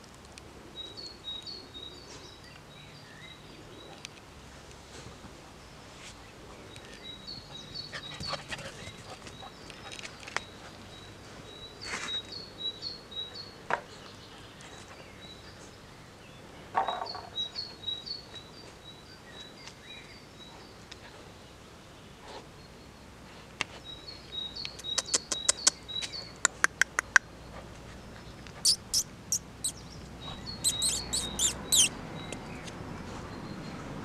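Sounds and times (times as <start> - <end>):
songbird chirping: 5.5 - 34.0
close clicks and crackles: 24.6 - 27.3.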